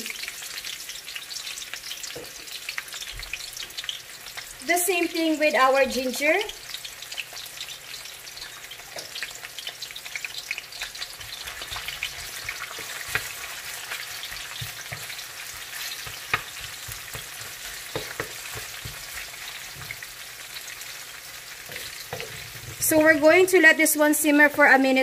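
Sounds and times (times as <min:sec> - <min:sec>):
onion sizzling in oil: 0:00.0 - 0:25.0
wooden spatula scraping wok: 0:21.6 - 0:23.0.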